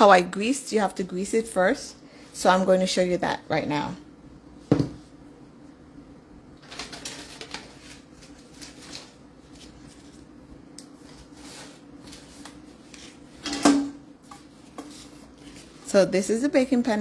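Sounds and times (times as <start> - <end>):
steady low hum: 0.0 - 6.8
kitchen handling rustles and clicks: 13.3 - 15.6.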